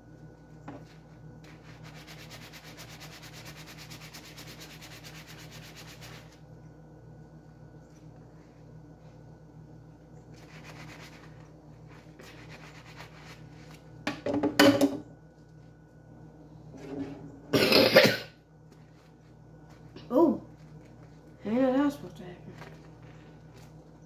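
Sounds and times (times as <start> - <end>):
sponge scrubbing utensil: 1.5 - 6.4
person coughing: 17.5 - 18.4.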